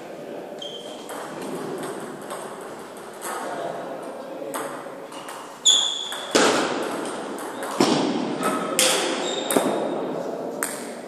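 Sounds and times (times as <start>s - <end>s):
sneaker squeaks on floor: 0.6s - 1.2s, 5.1s - 6.6s, 8.4s - 10.0s.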